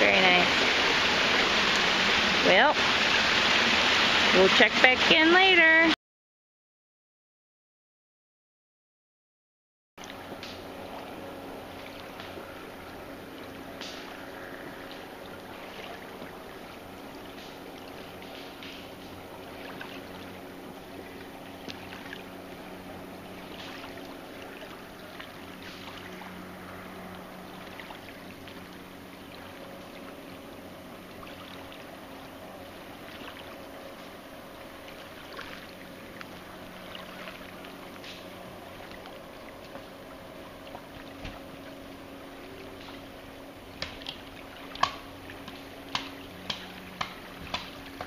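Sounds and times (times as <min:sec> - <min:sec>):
faint low hum: 0:10.0 - 0:48.0
soft water splashes: 0:10.0 - 0:48.0.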